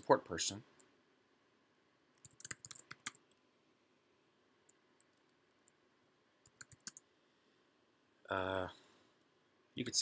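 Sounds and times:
keyboard keys clicking: 2.2s - 3.2s, 6.5s - 7.0s.

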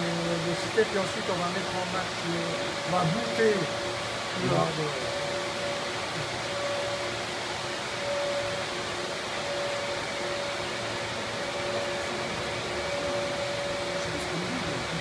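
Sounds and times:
cooling fans whooshing: 0.0s - 15.0s
faint constant hum: 0.0s - 15.0s.

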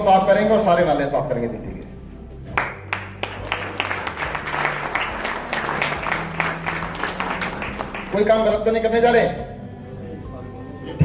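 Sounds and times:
low background music: 0.0s - 11.0s
audience applauding: 2.6s - 8.3s.

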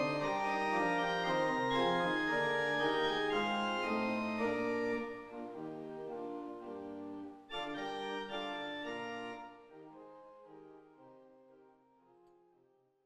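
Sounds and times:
organ playing sustained chords: 0.0s - 10.1s.

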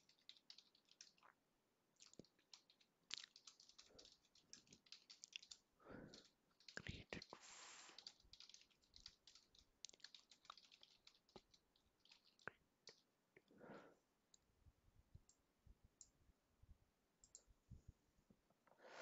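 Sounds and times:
keyboard keystrokes: 0.0s - 1.2s, 2.1s - 7.3s, 7.9s - 13.0s.

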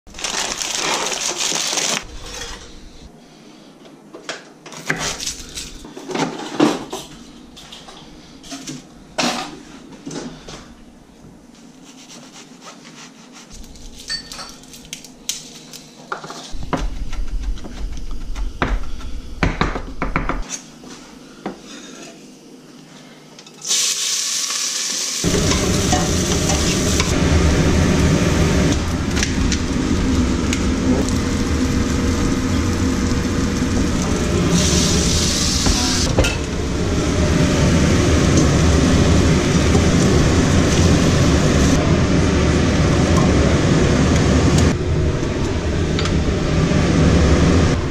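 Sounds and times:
steady hiss with low hum: 0.1s - 47.9s
pots and dishes clinking: 14.0s - 14.8s.

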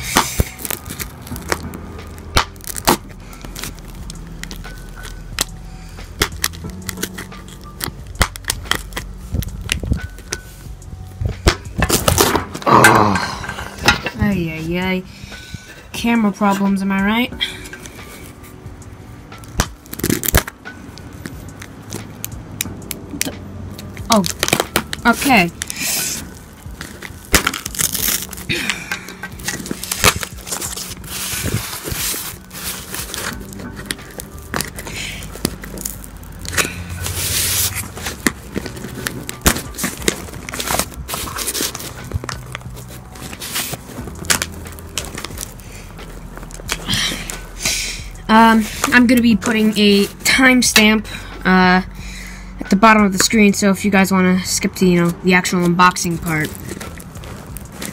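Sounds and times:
pen scraping through packing tape: 0.0s - 5.2s, 6.1s - 9.5s, 24.3s - 28.5s, 29.4s - 47.7s.

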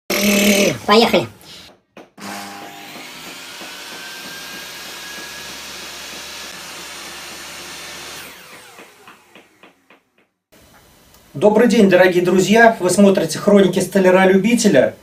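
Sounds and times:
electric motor running: 2.2s - 9.9s.

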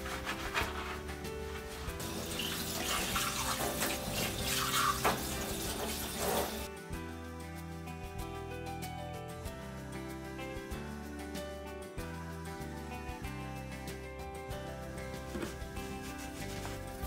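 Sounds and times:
background music: 0.0s - 17.0s
water running into sink: 2.0s - 6.7s.

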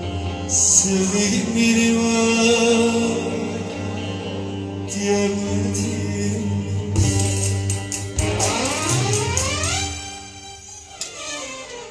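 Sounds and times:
rising musical sweep: 7.9s - 11.0s.

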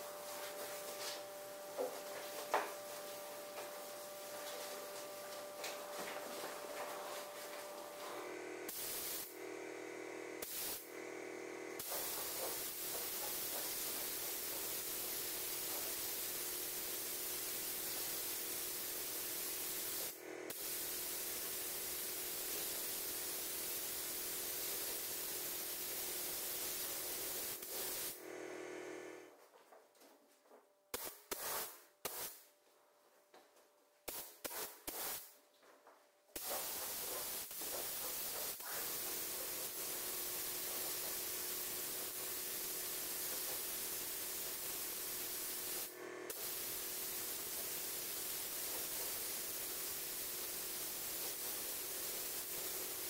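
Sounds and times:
paint spray gun hissing: 5.6s - 9.5s, 10.4s - 11.0s, 11.7s - 29.2s, 31.0s - 32.4s, 34.1s - 35.3s, 36.4s - 53.0s.

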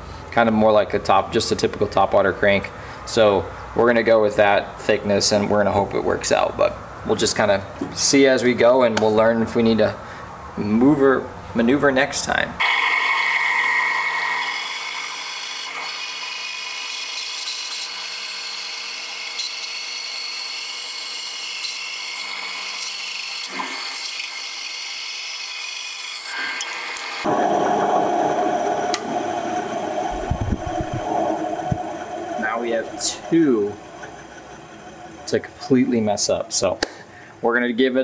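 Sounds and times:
bandsaw cutting wood: 12.6s - 27.3s.

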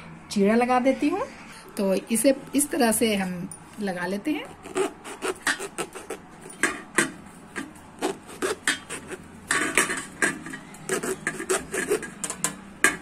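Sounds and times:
knife cutting eggplant skin: 4.6s - 13.0s.

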